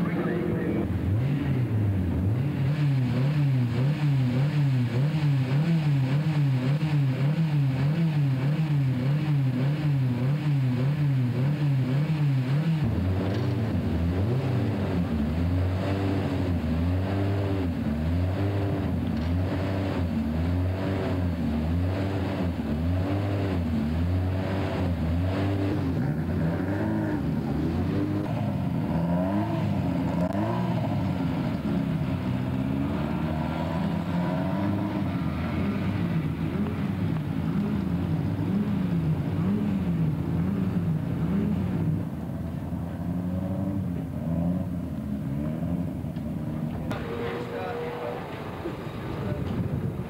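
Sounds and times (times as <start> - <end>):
racing car engine revving: 0.0 - 49.9.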